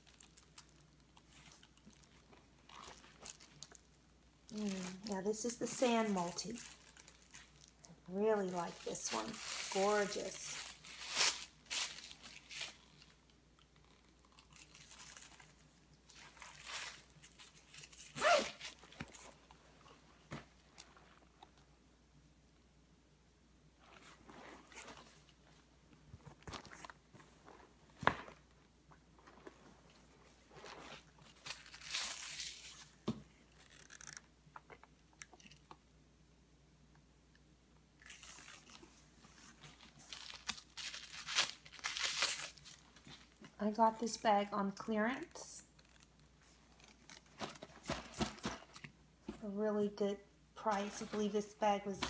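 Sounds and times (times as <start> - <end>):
plastic wrapping crinkling: 0.0 - 20.0, 30.4 - 35.7, 38.0 - 43.5, 45.6 - 48.9
handbag and plastic rustling: 4.5 - 13.2.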